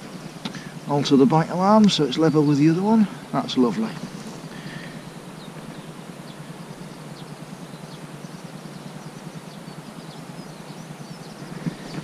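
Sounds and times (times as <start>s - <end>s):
small birds chirping: 0.0s - 12.0s
wind on microphone: 11.3s - 12.0s.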